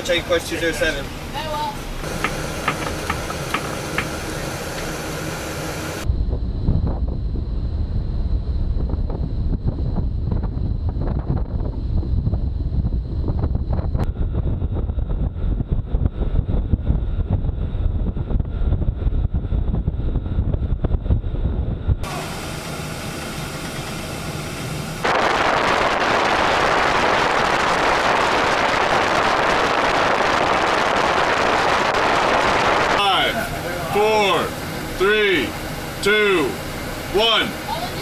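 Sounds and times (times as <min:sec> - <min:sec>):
churning ship wake: 0:00.0 - 0:06.1, 0:22.0 - 0:38.0
wind buffeting microphone: 0:01.3 - 0:24.2, 0:25.0 - 0:33.9.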